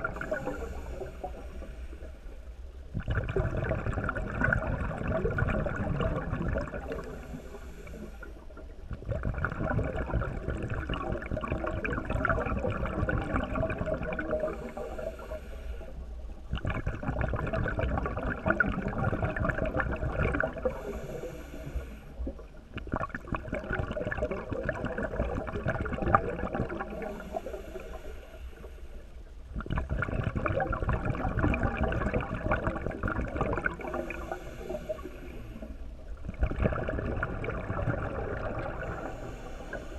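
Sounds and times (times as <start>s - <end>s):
faint hiss: 0.0s - 2.9s, 6.2s - 8.9s, 13.4s - 16.5s, 20.5s - 22.7s, 26.6s - 29.5s, 33.6s - 36.2s, 38.3s - 39.9s
underwater bubbling and rushing water: 0.0s - 39.9s.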